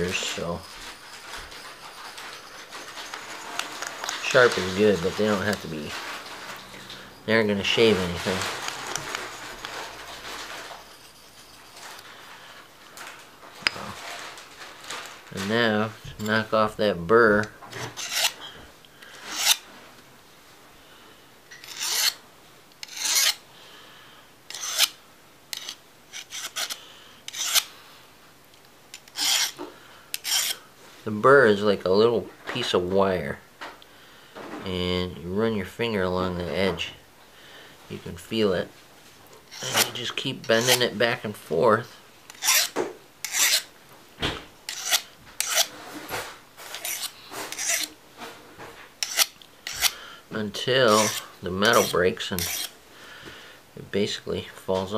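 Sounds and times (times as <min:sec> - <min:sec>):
file rasping on metal blade: 0:17.8 - 0:18.4, 0:19.3 - 0:19.6, 0:21.5 - 0:22.2, 0:22.8 - 0:23.4, 0:24.5 - 0:27.7, 0:29.0 - 0:30.6, 0:39.5 - 0:40.9, 0:42.3 - 0:43.7, 0:44.7 - 0:45.8, 0:46.7 - 0:47.9, 0:49.0 - 0:50.0, 0:50.9 - 0:52.7.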